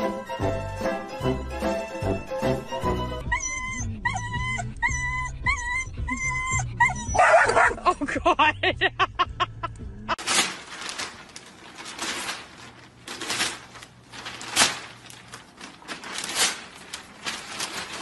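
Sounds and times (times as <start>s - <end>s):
newspaper rustling and crackling: 10.2s - 18.0s.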